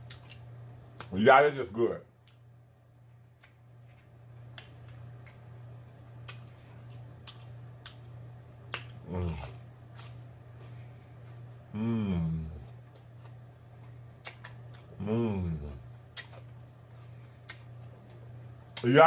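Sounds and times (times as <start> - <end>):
person chewing food: 0.0 - 1.1, 2.2 - 18.9
low electrical hum: 0.0 - 19.0
person humming: 9.0 - 9.6, 11.7 - 12.7, 15.0 - 15.8.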